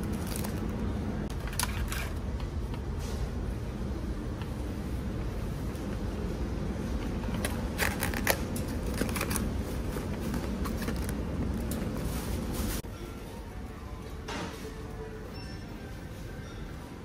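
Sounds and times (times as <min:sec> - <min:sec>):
crinkly rustling: 0:00.0 - 0:00.7.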